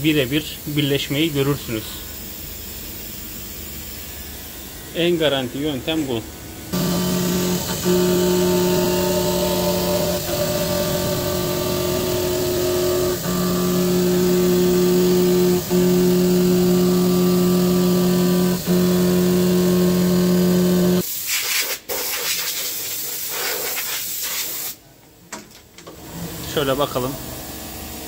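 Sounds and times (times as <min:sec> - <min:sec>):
milling machine cutting tone: 0:04.8 - 0:21.0.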